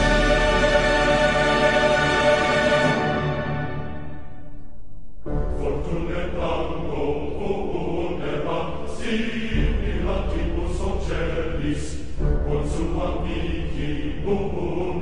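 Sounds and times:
chant-like voices: 0:00.0 - 0:04.6, 0:05.2 - 0:15.0
deep steady bass: 0:09.5 - 0:14.6.

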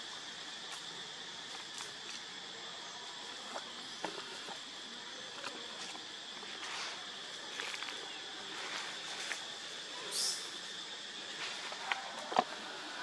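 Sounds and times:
high-pitched insect drone: 0:00.0 - 0:13.0
dry leaves crackling: 0:05.3 - 0:09.7.

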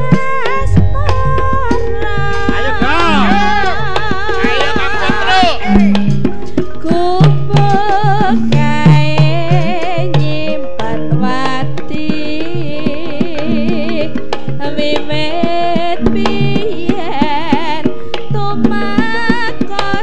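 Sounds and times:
person singing with vibrato: 0:00.0 - 0:06.0
hand drum strokes: 0:00.0 - 0:20.0
low metallic gong tones: 0:00.6 - 0:04.3.

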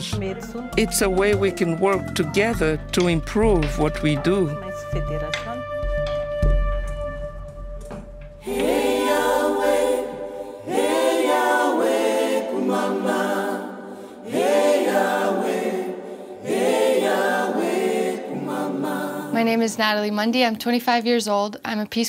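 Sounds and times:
unaccompanied choir singing: 0:08.4 - 0:19.8.

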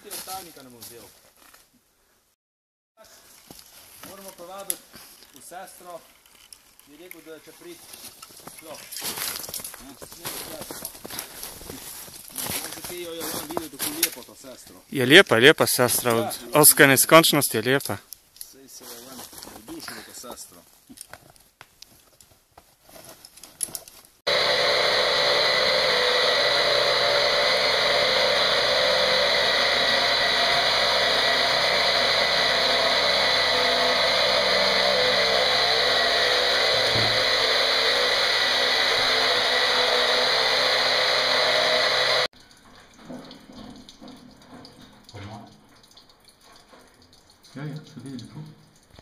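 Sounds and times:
power drill running: 0:24.3 - 0:42.3.

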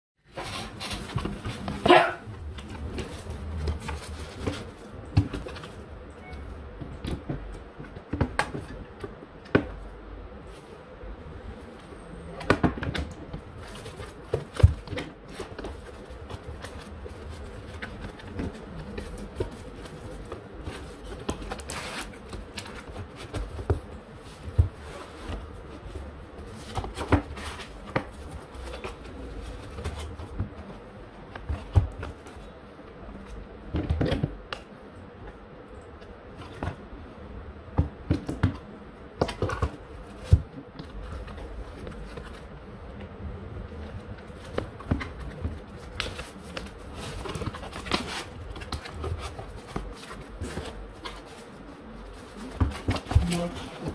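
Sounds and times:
cardboard rustling: 0:00.3 - 0:06.0, 0:12.5 - 0:32.6, 0:39.2 - 0:53.9.

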